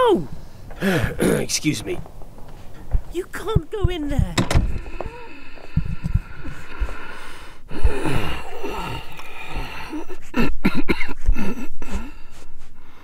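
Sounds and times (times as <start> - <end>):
elderly man groaning and gasping: 0.0 - 1.5, 4.7 - 13.0.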